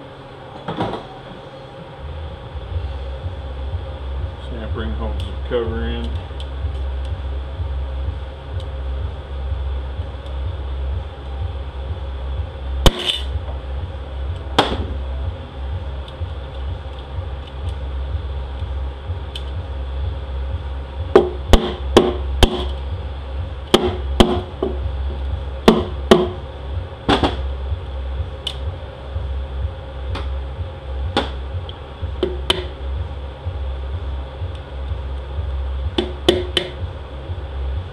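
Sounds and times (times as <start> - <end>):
steady low hum: 0.0 - 37.9
mallet tapping metal: 21.1 - 22.7, 23.6 - 24.8, 25.6 - 26.4, 32.2 - 32.8, 35.9 - 36.8.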